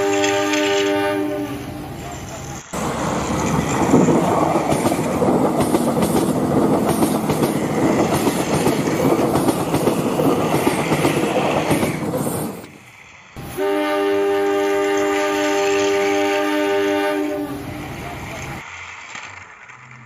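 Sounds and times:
sustained horn tone: 0.0s - 1.7s, 13.4s - 17.7s
toy trains rattling on track: 2.1s - 13.2s, 18.3s - 20.0s.

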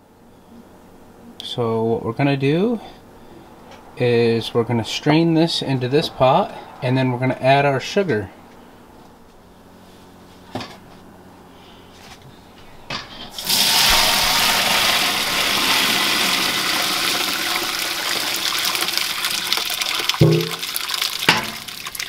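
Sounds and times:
liquid pouring through strainer: 13.4s - 22.0s
light knocks on pot: 20.2s - 20.6s.

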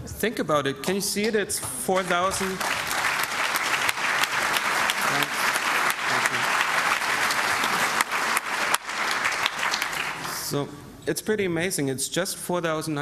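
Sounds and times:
audience applauding: 1.9s - 10.6s.

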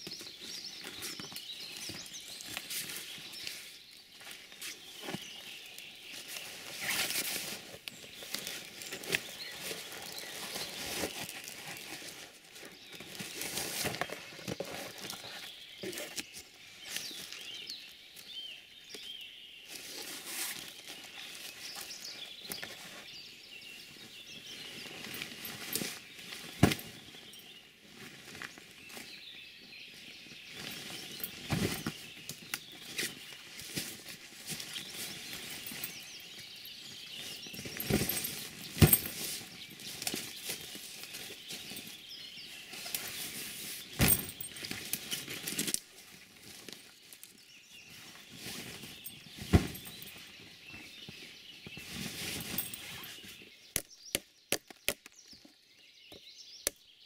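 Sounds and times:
small birds chirping: 0.0s - 57.0s
footsteps crunching through dry leaves: 0.1s - 17.8s.

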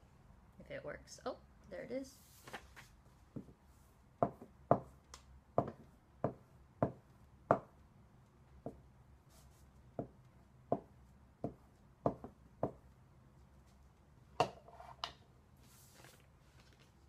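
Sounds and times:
paper rustling: 2.2s - 3.0s, 15.6s - 17.0s
glue stick knocking on paper: 4.2s - 4.9s, 5.6s - 7.7s, 10.0s - 12.9s.

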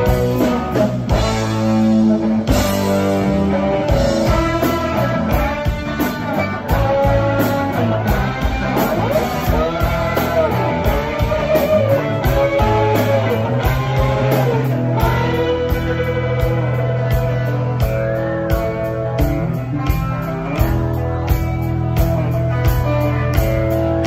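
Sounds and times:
electric guitars bending notes: 0.0s - 24.0s
rock band playing live: 0.0s - 24.0s.

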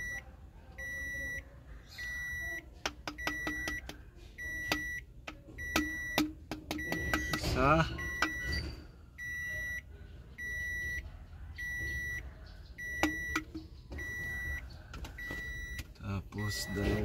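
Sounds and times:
electronic warning chime beeps: 0.0s - 0.2s, 0.8s - 1.4s, 2.0s - 9.8s, 10.4s - 11.0s, 11.6s - 12.2s, 12.8s - 14.6s, 15.2s - 15.8s, 16.4s - 17.0s.

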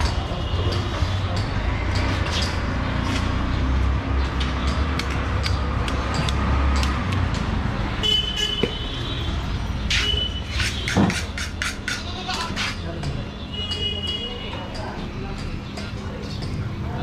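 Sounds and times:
traffic engines rumbling: 0.0s - 17.0s
vehicle horn: 8.0s - 11.0s.

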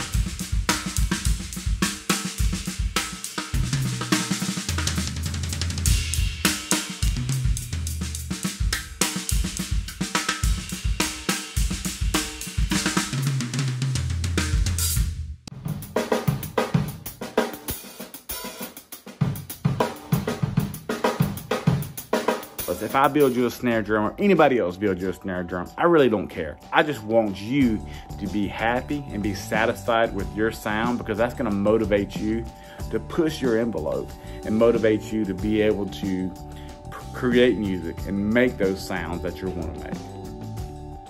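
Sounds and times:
drum kit groove: 0.0s - 41.0s.

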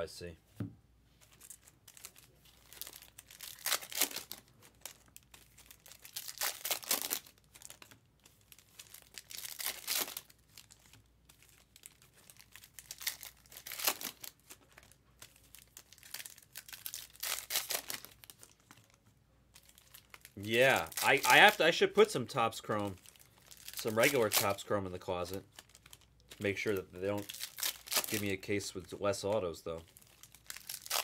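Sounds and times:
wrappers crinkling and tearing: 1.2s - 31.0s.

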